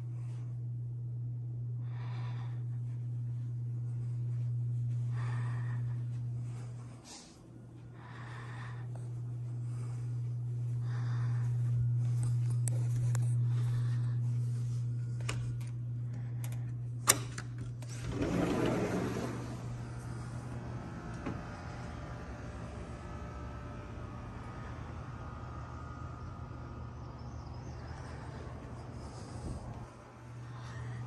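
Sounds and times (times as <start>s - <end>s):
steady low hum: 0.0s - 31.0s
sliding glass door opening: 17.8s - 21.6s.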